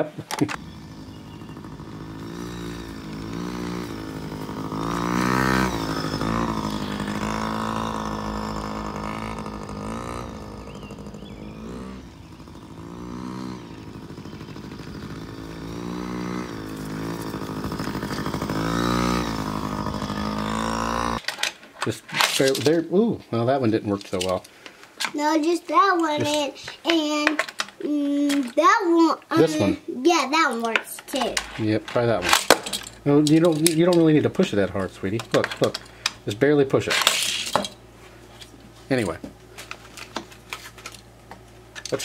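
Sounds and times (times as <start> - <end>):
small dirt bike engine revving: 0.5 - 21.2, 31.2 - 37.9.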